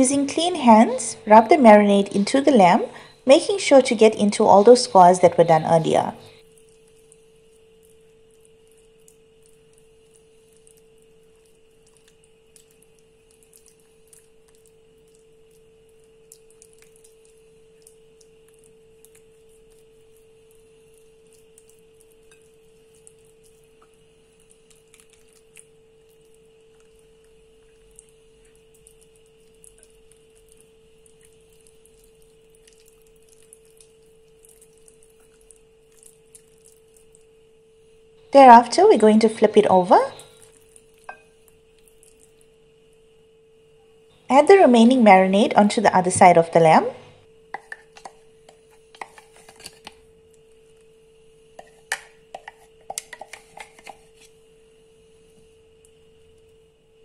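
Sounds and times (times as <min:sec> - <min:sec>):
faint steady hum: 0:00.0 - 0:57.0
wooden spoon tapping bowl: 0:47.5 - 0:49.3, 0:51.6 - 0:54.0.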